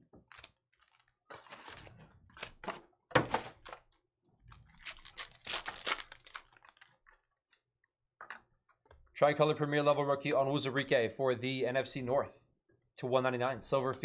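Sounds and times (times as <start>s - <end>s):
foil wrapper crinkling and tearing: 0.3s - 2.6s, 4.5s - 7.1s.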